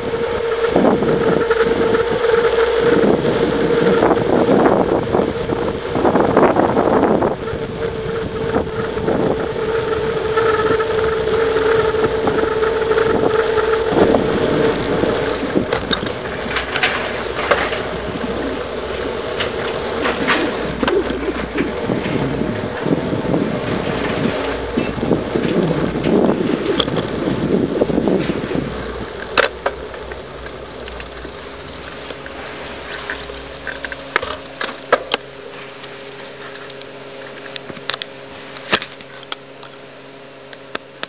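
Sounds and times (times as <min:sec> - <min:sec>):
steady whine: 0:00.0 - 0:41.0
tyre road rumble: 0:00.0 - 0:41.0
wind rushing over microphone: 0:00.0 - 0:41.0
bicycle knocking over bumps: 0:10.2 - 0:36.6.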